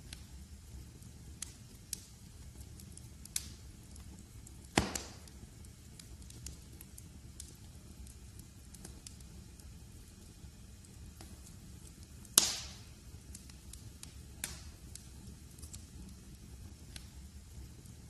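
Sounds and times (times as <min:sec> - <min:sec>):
wood fire crackling: 0:00.0 - 0:18.0.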